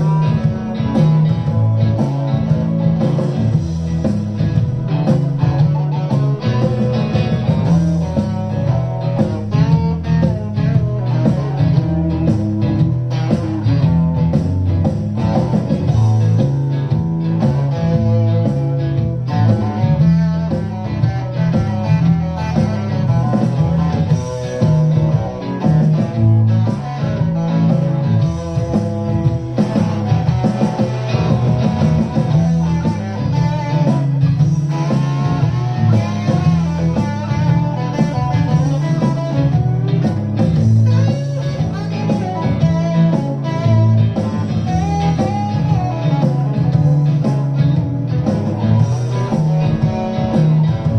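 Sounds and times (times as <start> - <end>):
electric guitar riffs: 0.0 - 50.9.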